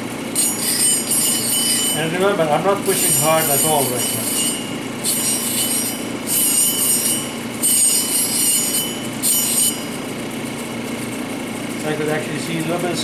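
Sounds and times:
machine motor hum: 0.0s - 13.0s
stone grinding on wet wheel: 0.4s - 9.9s.

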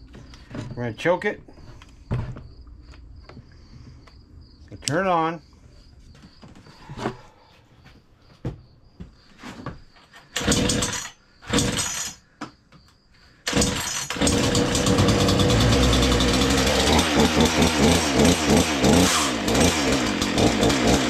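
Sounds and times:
chainsaw starting and running: 10.4s - 12.2s, 13.5s - 21.0s.

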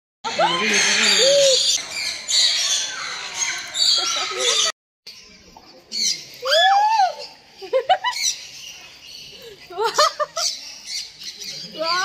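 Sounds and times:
parrots squawking: 0.3s - 4.7s
people laughing and exclaiming: 0.3s - 4.7s, 6.3s - 8.7s, 9.3s - 10.9s.

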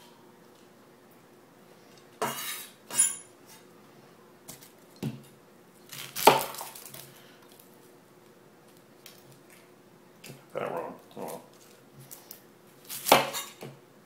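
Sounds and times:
knife scraping board: 2.2s - 3.6s.

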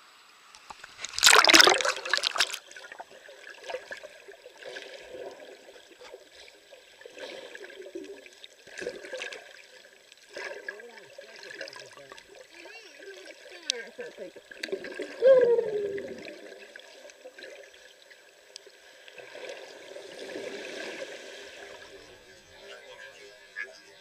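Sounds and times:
water rushing and splashing: 0.6s - 17.4s
muffled underwater sloshing: 0.7s - 24.0s.

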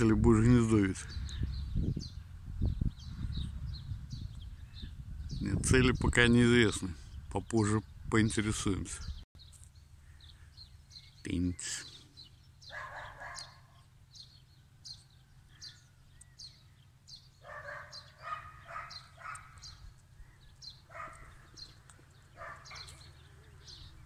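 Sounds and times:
small birds chirping: 0.0s - 24.0s
dog barking: 12.7s - 13.8s, 17.4s - 19.6s, 20.9s - 21.4s, 22.4s - 23.0s.

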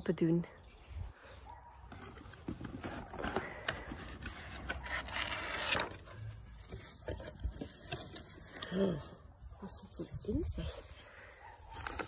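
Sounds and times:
paper rustling and crinkling: 1.9s - 8.8s, 10.8s - 12.0s.

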